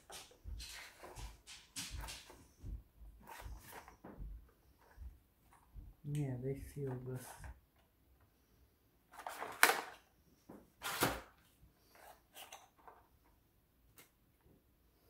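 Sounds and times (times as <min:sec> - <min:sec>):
cardboard rustling and scraping: 0:00.0 - 0:05.7, 0:09.1 - 0:10.0, 0:10.7 - 0:13.1.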